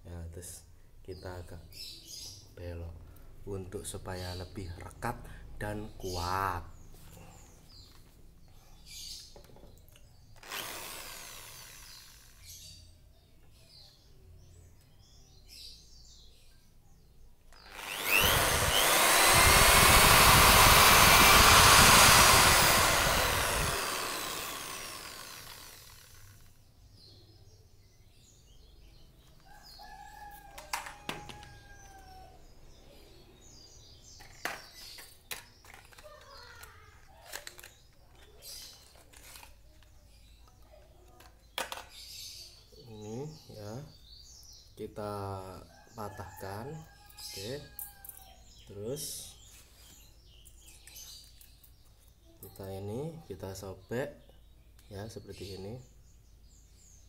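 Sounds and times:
electric drill drilling into wood: 10.4 - 12.6, 17.6 - 26.5.

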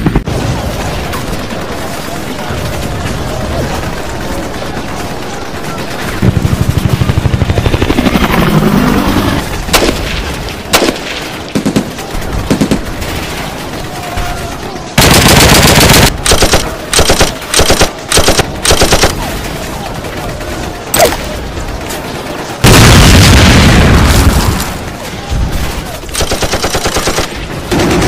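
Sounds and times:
automatic gunfire: 9.6 - 14.0, 15.0 - 19.6, 26.1 - 28.0.

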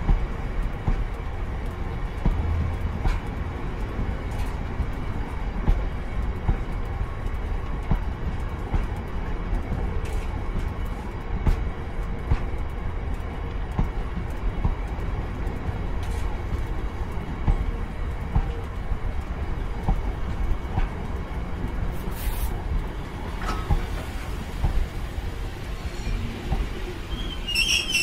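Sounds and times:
train wheels rumbling on rail: 0.0 - 28.0
brief hiss: 22.1 - 22.6.

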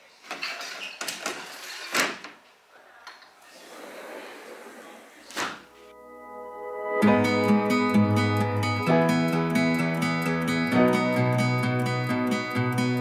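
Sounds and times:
acoustic guitar music: 5.9 - 13.0.

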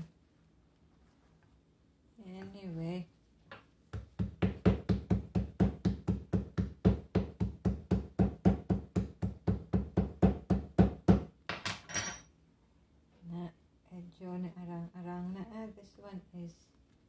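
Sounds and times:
mallet knocking on countertop: 3.9 - 11.8.

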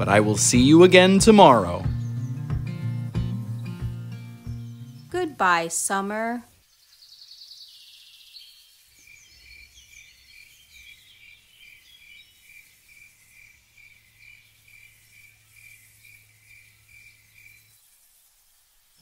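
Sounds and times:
faint high twittering: 0.9 - 19.0
crickets chirping: 6.5 - 19.0.

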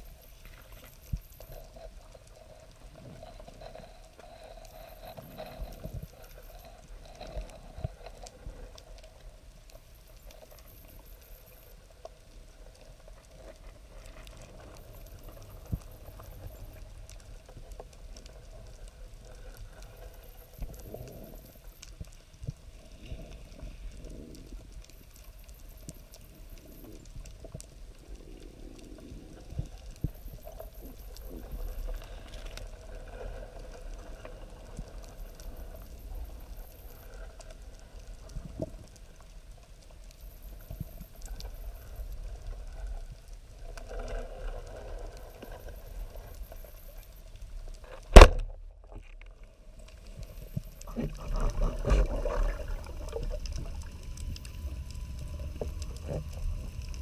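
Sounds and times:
sharp underwater clicks and crackles: 0.0 - 57.0
underwater rush of water: 50.0 - 57.0.

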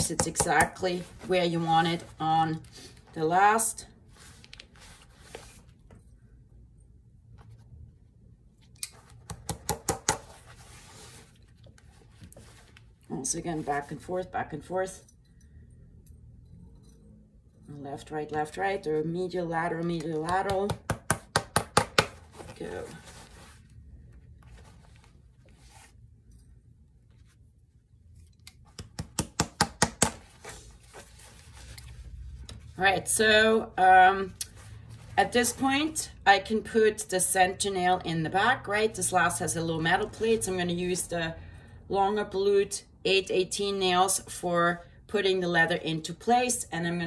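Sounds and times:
hammer tapping on leather: 20.3 - 22.2.

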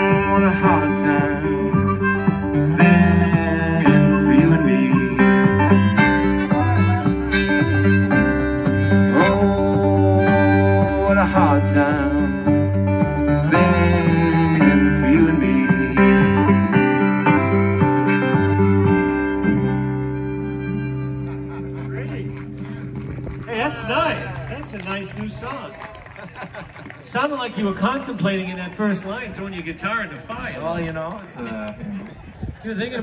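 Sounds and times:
acoustic guitar: 0.0 - 24.4
harmonica lead: 0.0 - 24.4
electric bass: 0.0 - 25.6.

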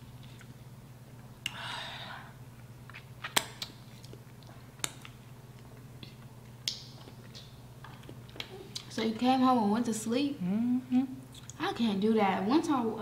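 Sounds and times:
mouth clicks and smacks chewing: 2.9 - 8.9.

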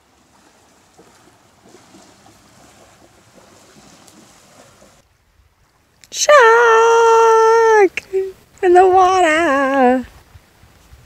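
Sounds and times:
small waves lapping on shingle: 0.0 - 5.0.

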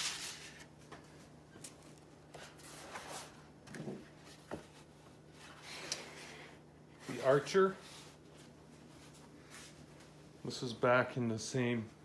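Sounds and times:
paper rustling: 0.0 - 0.8.

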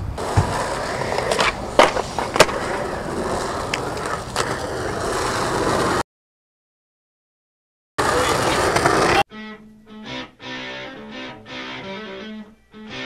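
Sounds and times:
skateboard wheels rolling on concrete: 0.0 - 6.0, 8.0 - 9.2
skateboard clacks: 0.2 - 6.0, 8.0 - 9.2.

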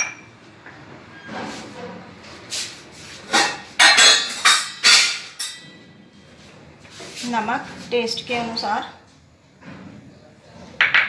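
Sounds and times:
glass bowls clinking on marble: 0.0 - 0.3, 3.5 - 5.8.

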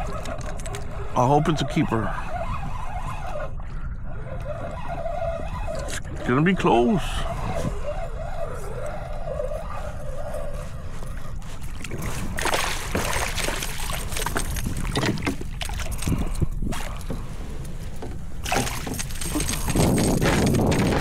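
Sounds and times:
fish knocking and clattering in kayak: 0.0 - 3.7, 11.0 - 21.0
wind rumble on microphone: 0.0 - 21.0.

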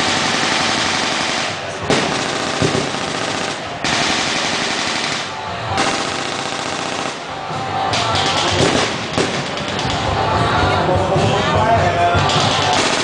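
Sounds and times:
rapid automatic gunfire: 0.0 - 7.4, 8.1 - 9.9, 12.4 - 13.0.

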